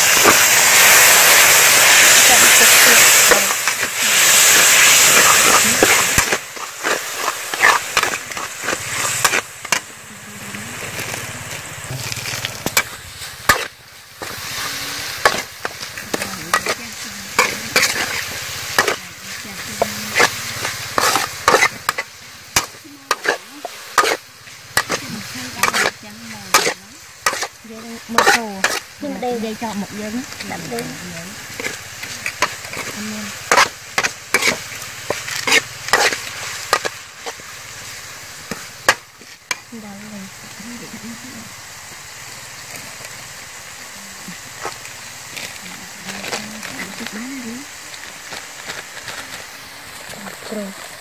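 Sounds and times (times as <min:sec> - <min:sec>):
metal spatula scraping wok: 0:00.0 - 0:39.7
oil sizzling: 0:00.0 - 0:51.0.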